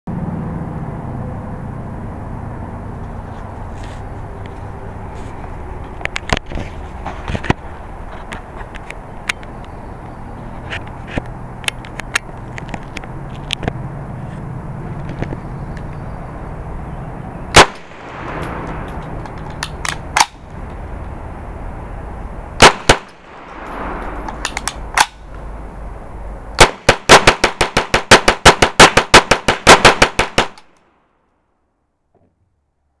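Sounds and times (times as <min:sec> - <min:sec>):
submachine gun firing: 0:26.6 - 0:30.6.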